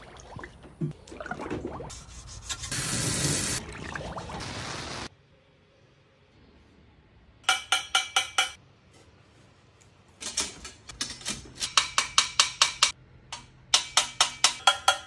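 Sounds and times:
small hammer tapping metal: 0:07.4 - 0:08.6, 0:10.2 - 0:15.0.

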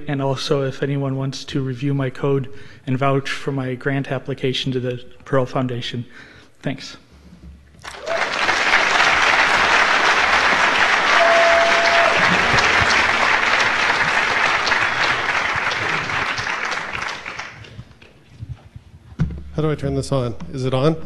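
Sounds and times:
audience applauding: 0:07.8 - 0:17.9
short steady tone: 0:11.2 - 0:12.1.

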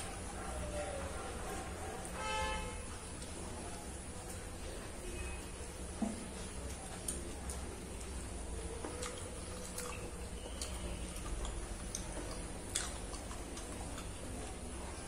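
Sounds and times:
mouth chewing: 0:06.0 - 0:15.0.

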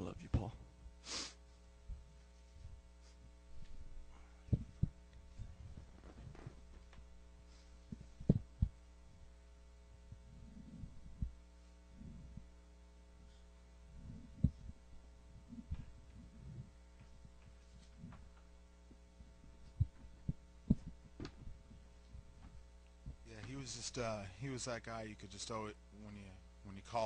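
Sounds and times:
electrical hum: 0:00.0 - 0:27.0
microphone handling thumps: 0:03.5 - 0:07.1, 0:07.8 - 0:09.2, 0:10.1 - 0:11.4, 0:14.0 - 0:18.4, 0:19.2 - 0:23.7.

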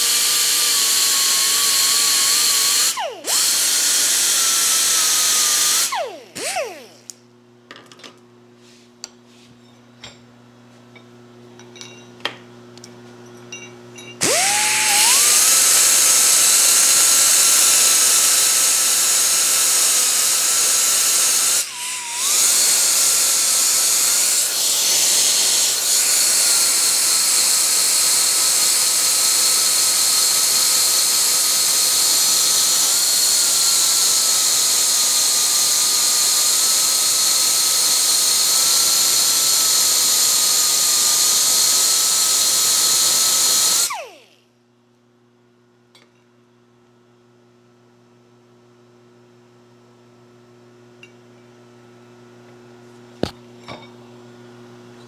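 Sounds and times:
grinder whining: 0:00.0 - 0:07.2, 0:14.2 - 0:44.4.

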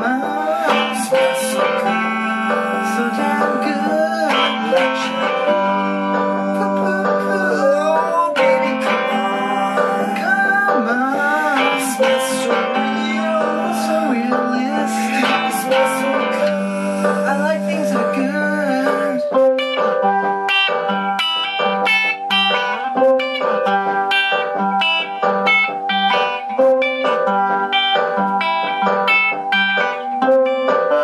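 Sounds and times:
electric guitar: 0:00.0 - 0:31.0.

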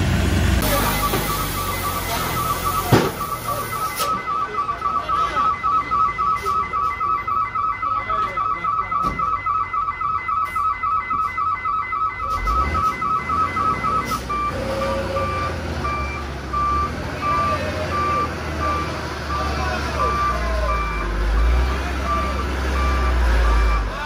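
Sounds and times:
diesel engine rumble: 0:00.0 - 0:24.0
truck reversing alarm beeping: 0:00.4 - 0:24.0.

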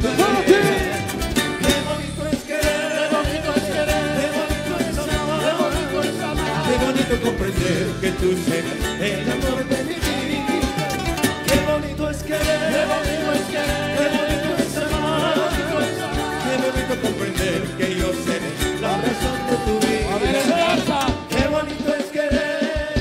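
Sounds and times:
live band instrumental music: 0:00.0 - 0:23.0
strummed and plucked guitars: 0:00.0 - 0:23.0.

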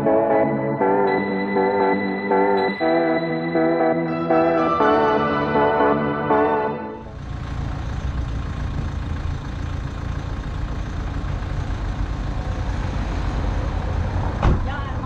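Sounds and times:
background music: 0:00.0 - 0:07.2
street traffic noise: 0:06.8 - 0:15.0.

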